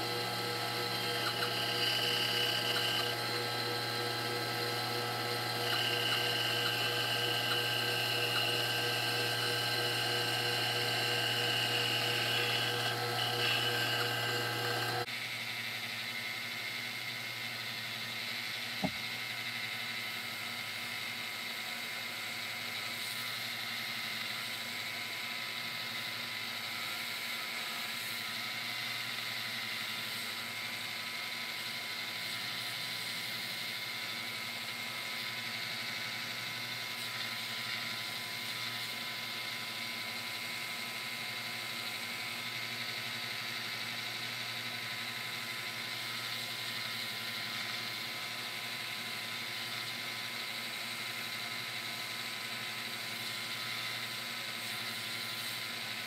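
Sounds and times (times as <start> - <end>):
belt sander running: 0.0 - 15.1
wood sanding on belt: 0.0 - 15.1.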